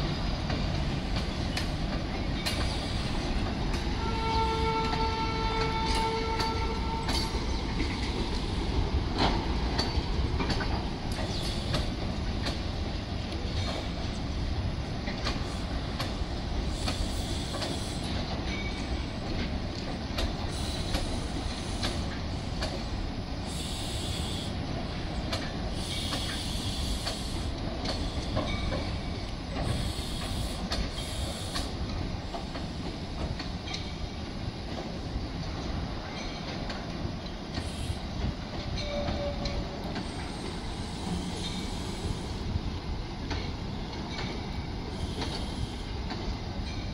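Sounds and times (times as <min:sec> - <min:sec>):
rumble of wheels on rail: 0:00.0 - 0:46.9
clicks over rail joints: 0:04.5 - 0:14.3, 0:15.0 - 0:23.0, 0:25.3 - 0:33.9
high-pitched hiss: 0:15.3 - 0:19.2, 0:20.4 - 0:32.8, 0:40.1 - 0:42.9, 0:44.3 - 0:46.1.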